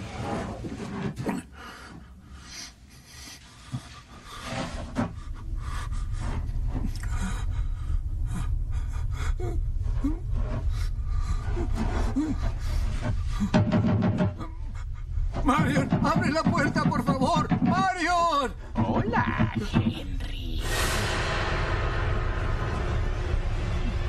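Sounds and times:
rubbing and scraping sounds: 0:00.0 - 0:02.1, 0:03.0 - 0:24.0
low ominous rumbling drone: 0:04.2 - 0:17.4, 0:18.6 - 0:24.0.

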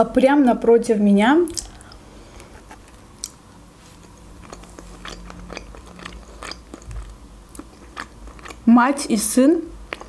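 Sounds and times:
person chewing food: 0:01.5 - 0:08.7, 0:09.8 - 0:10.0.

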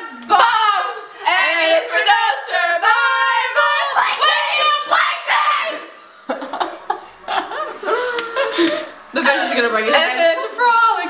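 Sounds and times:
girls talking and exclaiming: 0:00.0 - 0:11.0
girls laughing: 0:04.2 - 0:10.9.

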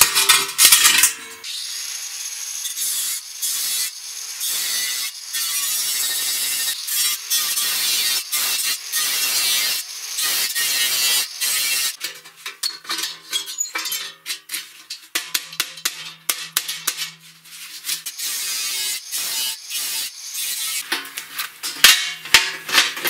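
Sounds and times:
angle grinder cutting sheet metal: 0:00.0 - 0:12.0, 0:17.8 - 0:21.0.

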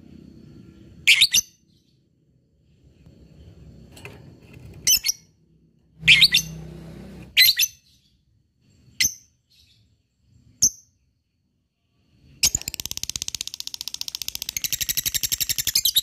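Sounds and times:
lovebird chirping and trilling: 0:01.0 - 0:01.9, 0:04.8 - 0:05.4, 0:06.0 - 0:06.6, 0:07.3 - 0:08.2, 0:12.3 - 0:16.0.

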